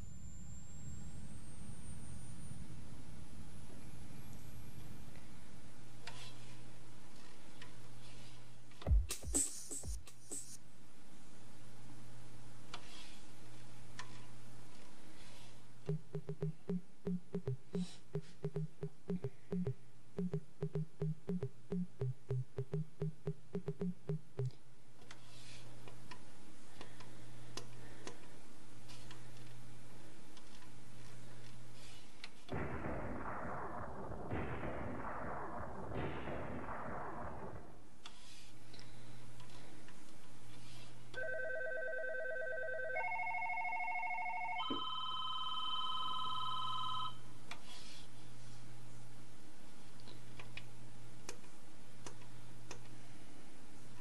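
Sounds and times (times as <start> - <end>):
steady low hum: 13.3 - 24.8, 32.5 - 41.1
crackling noise with clicks: 15.8 - 29.6, 30.3 - 40.8
synthesizer low drone: 15.9 - 24.5, 32.6 - 37.9
synthesizer short low notes: 15.9 - 24.5
warbling electronic tones: 15.9 - 24.5.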